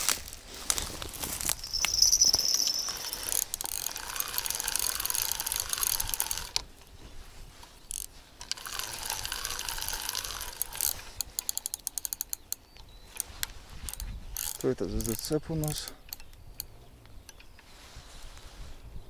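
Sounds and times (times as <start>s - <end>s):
spinning reel whirring: 1.5s - 6.6s, 7.9s - 12.3s.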